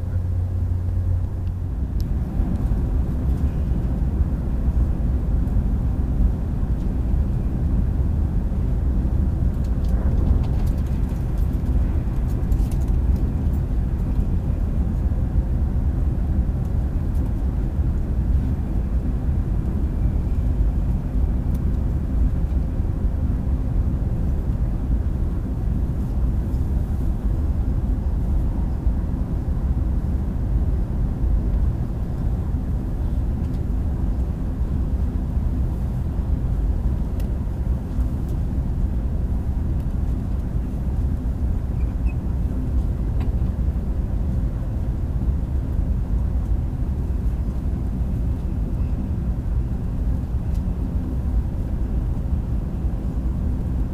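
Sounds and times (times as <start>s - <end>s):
train rumbling from inside coach: 0.0s - 53.9s.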